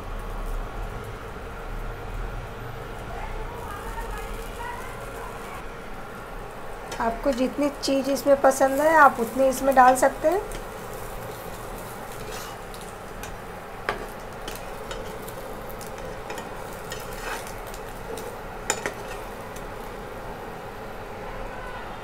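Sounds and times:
omelette sizzling in butter: 6.7 - 20.5
metal spatula scraping a pan: 12.1 - 15.3, 16.0 - 19.3.

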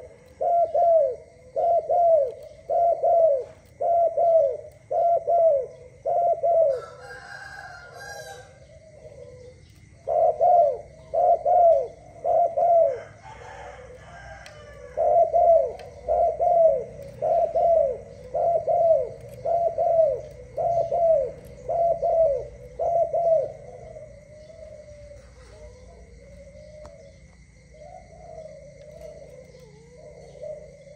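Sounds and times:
dove cooing: 0.0 - 30.9.

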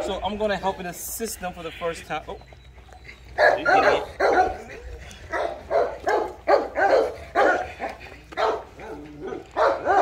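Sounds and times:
dog barking: 3.4 - 4.7, 5.3 - 10.0.

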